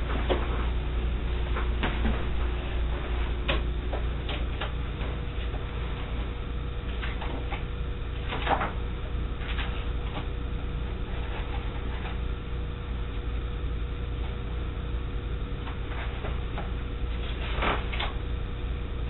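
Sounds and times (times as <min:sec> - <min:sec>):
low hum and hiss: 0:00.0 - 0:19.0
paper rustling: 0:08.2 - 0:10.4, 0:15.7 - 0:18.2.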